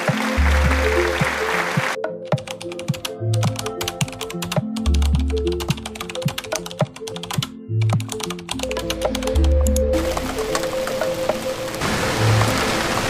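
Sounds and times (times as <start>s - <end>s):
background music with bass: 0.0s - 12.6s
keyboard typing clicks: 2.0s - 11.1s.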